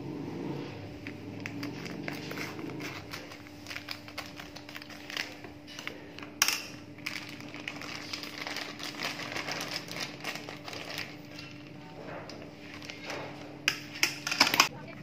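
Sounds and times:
plastic packet crinkling: 0:01.5 - 0:06.1, 0:06.7 - 0:13.1.

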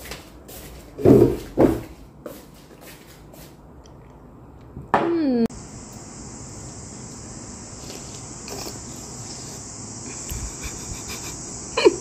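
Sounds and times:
steady high-pitched hiss: 0:05.5 - 0:12.0
child sipping soup: 0:07.1 - 0:11.3.

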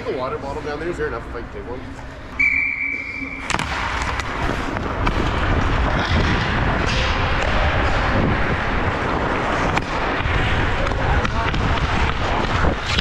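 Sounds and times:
skates scraping on ice: 0:03.5 - 0:13.0.

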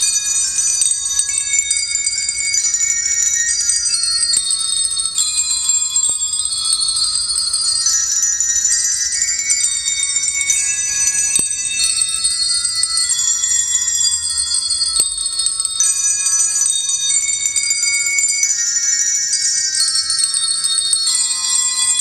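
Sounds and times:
handbells ringing: 0:00.0 - 0:22.0.

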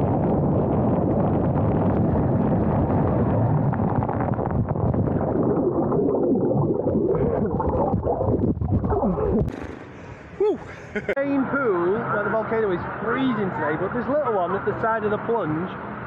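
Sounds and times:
water and air rushing on slide: 0:00.0 - 0:11.1
wavering warbling sounds: 0:04.8 - 0:11.1.

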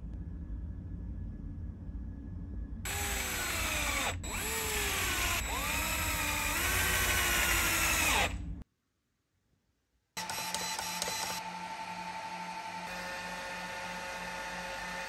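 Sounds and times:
electric screwdriver motor whining: 0:02.9 - 0:08.4, 0:10.2 - 0:11.5.

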